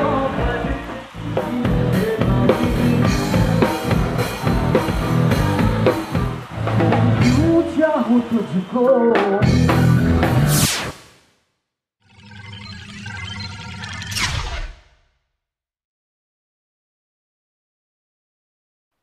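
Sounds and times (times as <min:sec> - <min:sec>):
drum kit beat: 0:00.0 - 0:08.1, 0:09.1 - 0:10.6
rock band music: 0:00.0 - 0:10.7.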